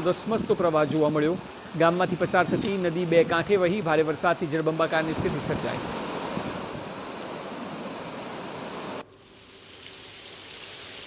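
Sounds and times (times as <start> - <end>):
faint steady hiss: 8.5 - 11.0
floodwater rushing: 9.2 - 11.0.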